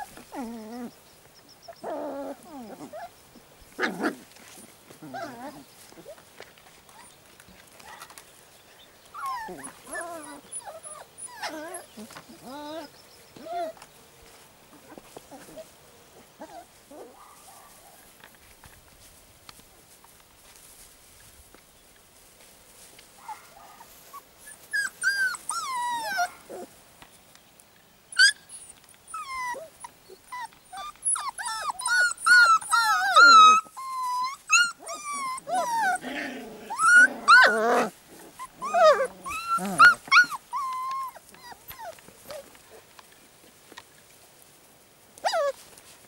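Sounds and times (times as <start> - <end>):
puppies whining and yelping: 0.0 - 1.0, 1.6 - 3.2, 3.8 - 6.2, 9.1 - 13.9, 24.0 - 26.7, 28.1 - 42.6, 45.2 - 45.6.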